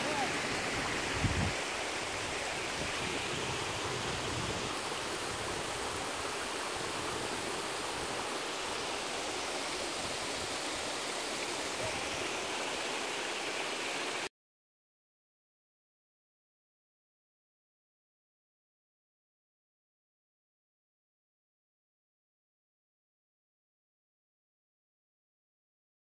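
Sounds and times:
stream running over rocks: 0.0s - 14.3s.

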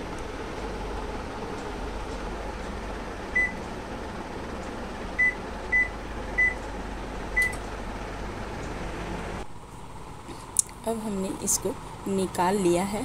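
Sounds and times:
microwave oven humming: 0.0s - 13.0s
microwave control panel beeps: 3.3s - 3.6s, 5.2s - 6.6s, 7.4s - 7.6s.

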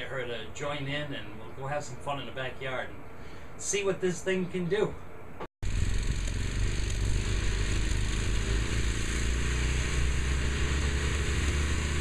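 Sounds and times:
tractor engine rumbling: 5.6s - 12.0s.

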